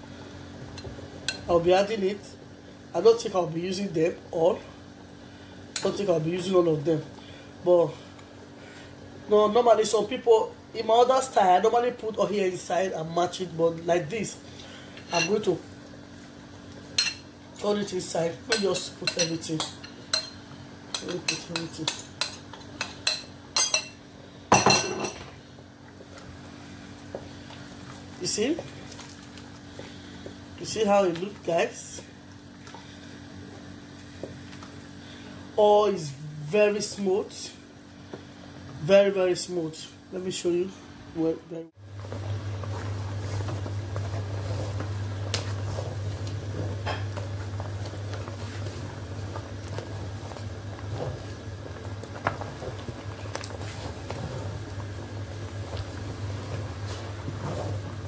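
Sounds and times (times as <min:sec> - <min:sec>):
steady low hum: 0:00.0 - 0:58.0
thick soup bubbling in pot: 0:25.4 - 0:31.5, 0:41.8 - 0:58.0
wooden spoon stirring: 0:41.9 - 0:58.0.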